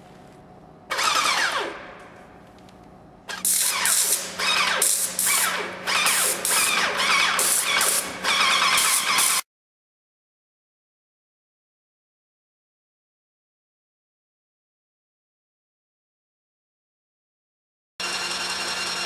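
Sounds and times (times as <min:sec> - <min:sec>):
paint sprayer hissing pulses: 0:03.4 - 0:09.4.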